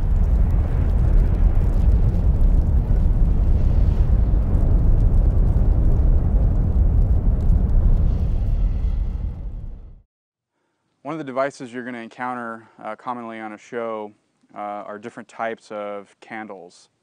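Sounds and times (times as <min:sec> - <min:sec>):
deep rumbling roar: 0:00.0 - 0:10.0.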